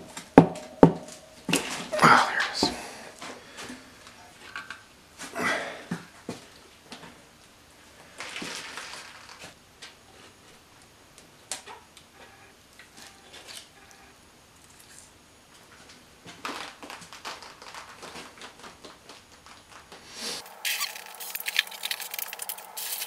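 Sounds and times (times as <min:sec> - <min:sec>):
quick clicks and rustles: 0:08.2 - 0:09.6, 0:15.8 - 0:23.0.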